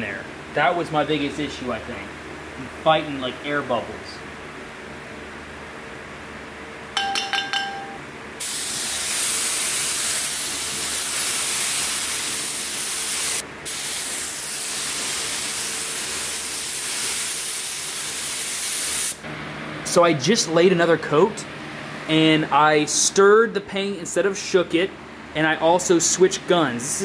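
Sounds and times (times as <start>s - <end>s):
metallic clinks: 7.0s - 8.0s
spray gun hissing: 8.4s - 19.2s.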